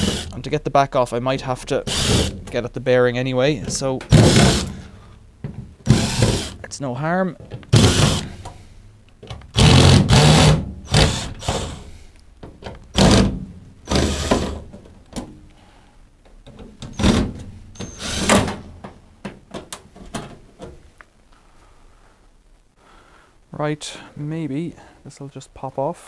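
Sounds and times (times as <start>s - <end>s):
power tool bursts: 1.9s - 2.4s, 4.1s - 4.8s, 5.9s - 6.6s, 7.7s - 8.4s, 9.5s - 11.9s, 13.0s - 14.6s, 16.9s - 18.5s.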